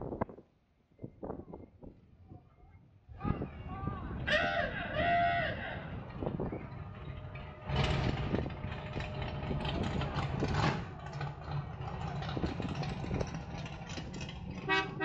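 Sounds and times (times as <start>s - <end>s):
car engine running at low speed: 5.6s - 15.0s
car horn toots: 14.6s - 15.0s.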